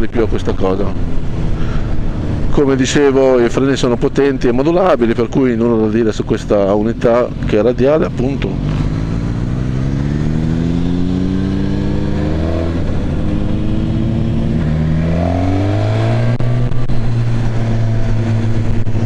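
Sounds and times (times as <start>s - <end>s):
motorcycle engine accelerating: 0.6s - 3.4s, 5.8s - 19.0s.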